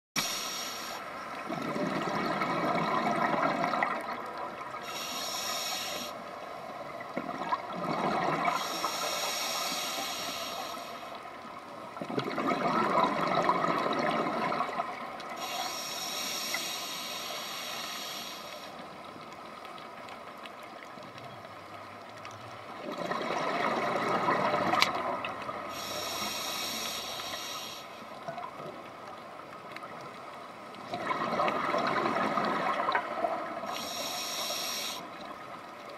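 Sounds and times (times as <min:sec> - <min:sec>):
scuba regulator inhale hiss: 0:00.2 - 0:01.2, 0:04.8 - 0:06.3, 0:08.4 - 0:11.2, 0:15.4 - 0:18.8, 0:25.7 - 0:28.1, 0:33.6 - 0:35.2
faint steady hum: 0:00.2 - 0:35.9
exhaled bubbles: 0:01.5 - 0:04.8, 0:07.0 - 0:08.9, 0:12.0 - 0:15.1, 0:22.8 - 0:25.8, 0:30.9 - 0:33.7.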